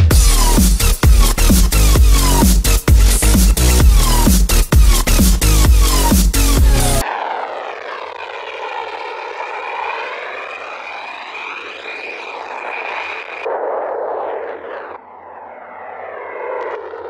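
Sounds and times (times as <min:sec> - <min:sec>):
electronic dance music: 0:00.0 - 0:07.0
fighter jet taking off: 0:00.0 - 0:17.0.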